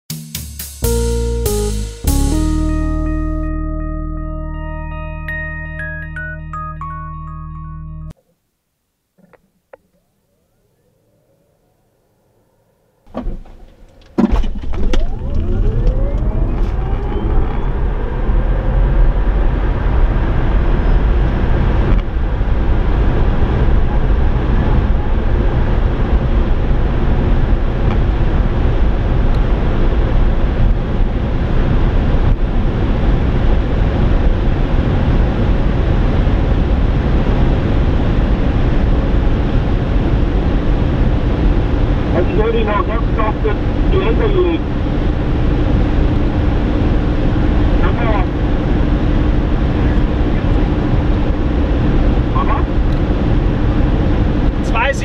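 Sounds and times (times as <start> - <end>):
road and wind noise: 12.3 - 55.0
electric motor whine: 14.7 - 21.1.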